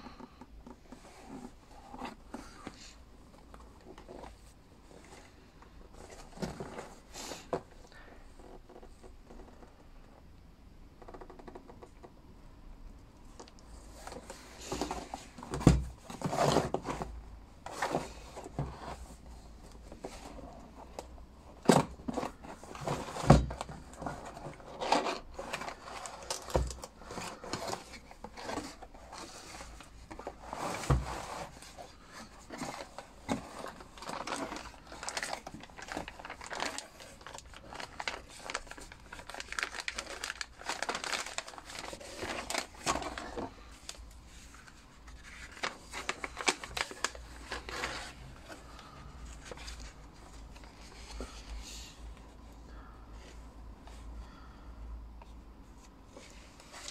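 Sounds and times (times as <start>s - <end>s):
cardboard box knocks and thumps: 14.6s - 17.1s, 21.6s - 24.4s, 30.1s - 31.6s
plastic packaging crinkling: 21.8s - 51.3s.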